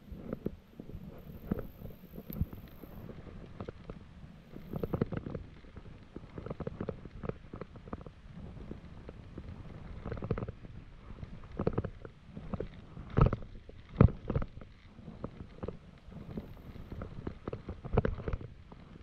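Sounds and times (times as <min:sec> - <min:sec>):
bike knocking and rattling: 0:00.0 - 0:19.0
bike tyres rumbling on dirt: 0:00.0 - 0:19.0
wind noise on microphone: 0:00.0 - 0:19.0.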